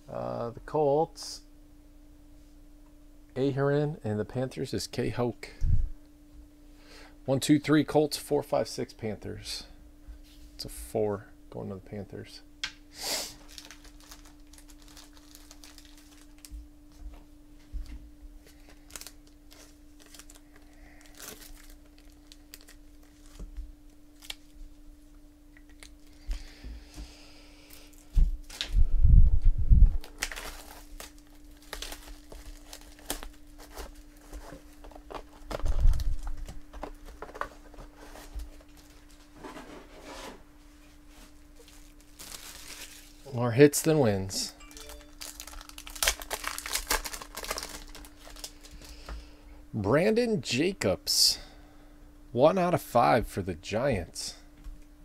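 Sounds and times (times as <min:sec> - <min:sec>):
plastic wrap crinkling and tearing: 0:13.3 - 0:16.6, 0:18.5 - 0:23.5, 0:24.2 - 0:24.6, 0:30.0 - 0:39.2, 0:41.6 - 0:43.4, 0:44.6 - 0:49.0.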